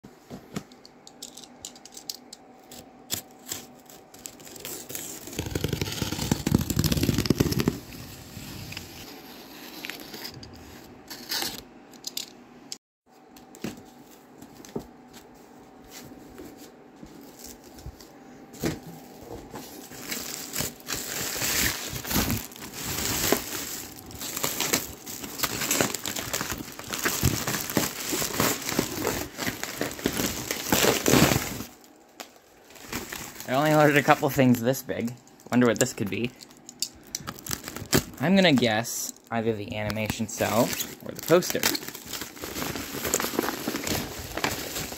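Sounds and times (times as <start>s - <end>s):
bubble wrap rustling: 3.2s - 10.8s, 13.8s - 18.3s, 18.9s - 44.9s
cardboard box scraping and tearing: 4.4s - 9.1s.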